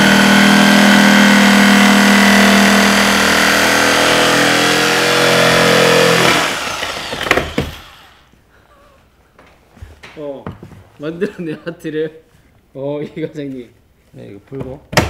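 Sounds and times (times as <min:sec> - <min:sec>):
jigsaw cutting wood: 0:00.0 - 0:08.3
sharp knocks: 0:05.2 - 0:08.1.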